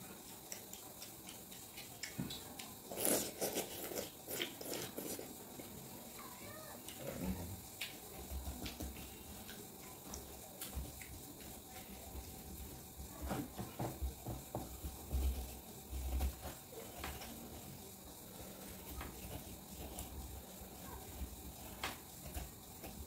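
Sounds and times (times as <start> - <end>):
spoon scraping watermelon flesh: 2.9 - 5.3.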